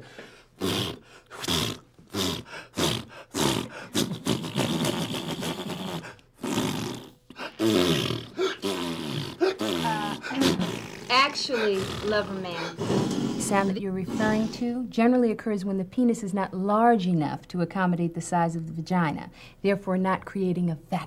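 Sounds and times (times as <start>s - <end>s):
man making fart noises with mouth: 0.6s - 14.6s.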